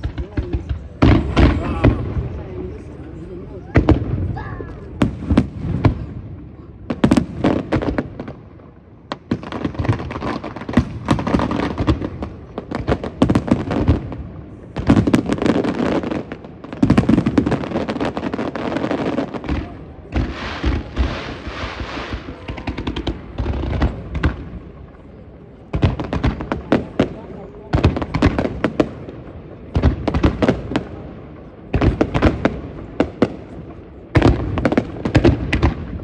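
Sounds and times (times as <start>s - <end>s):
fireworks crackling and popping: 0.0s - 36.0s.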